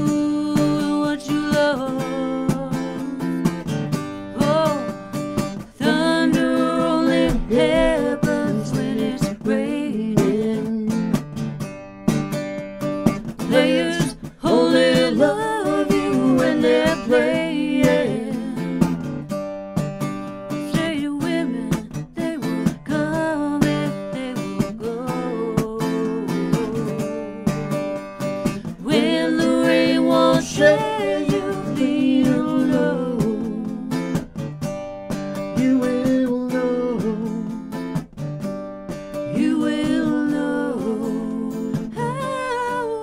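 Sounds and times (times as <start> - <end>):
person singing: 0.0 - 3.5, 4.2 - 5.0, 5.7 - 11.1, 13.4 - 18.9, 20.7 - 27.9, 28.5 - 34.2, 35.6 - 37.6, 39.2 - 43.0
acoustic guitar strumming: 0.0 - 43.0.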